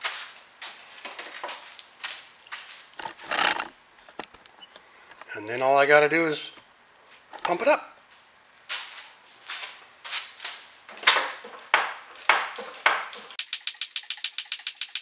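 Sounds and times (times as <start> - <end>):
rapid ratchet-like clicking: 13.4 - 15.0.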